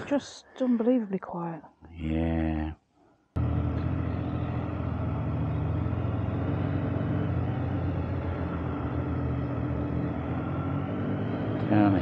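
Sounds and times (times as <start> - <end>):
motorcycle engine running: 3.4 - 12.0.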